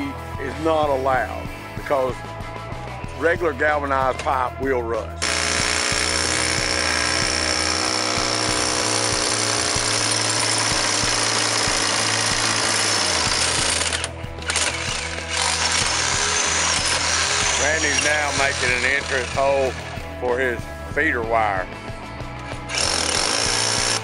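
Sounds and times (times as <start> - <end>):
rotary hammer drilling into brick: 5.2 - 19.9, 22.7 - 24.0.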